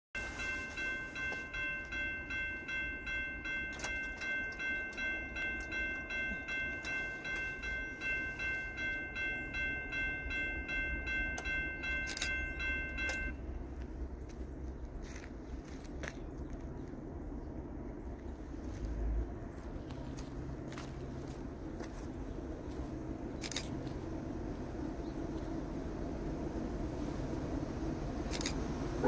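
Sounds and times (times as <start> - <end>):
crossing warning bell ringing: 0.1 - 14.4, 20.1 - 29.0.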